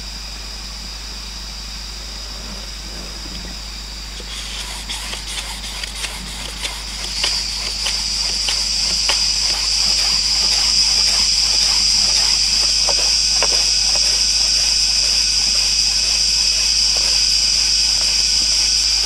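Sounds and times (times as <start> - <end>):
high insect buzz: 1.5 - 19.0
tool scraping bamboo pole: 4.2 - 19.0.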